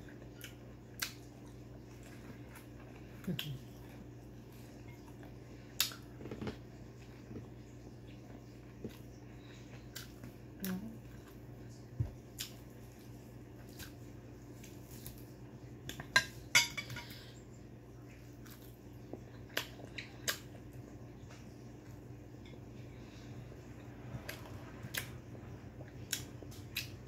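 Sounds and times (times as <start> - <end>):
steady low hum: 0.0 - 27.0
clinks on ceramic plate: 16.2 - 17.1.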